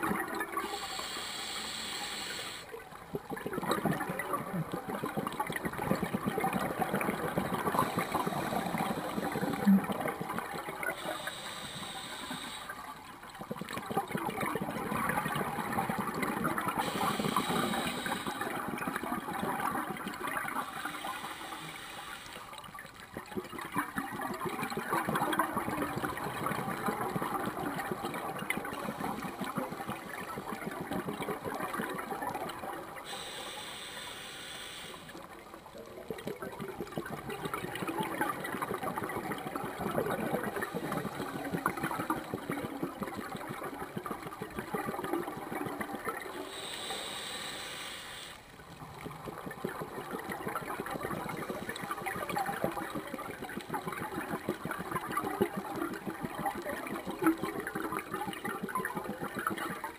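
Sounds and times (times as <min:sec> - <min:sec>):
underwater exhaled bubbles gurgling: 0:00.0 - 0:59.9
regulator inhalation hiss: 0:00.6 - 0:02.8, 0:07.8 - 0:09.6, 0:10.9 - 0:12.8, 0:16.8 - 0:18.6, 0:20.6 - 0:22.5, 0:33.1 - 0:35.2, 0:46.4 - 0:48.4.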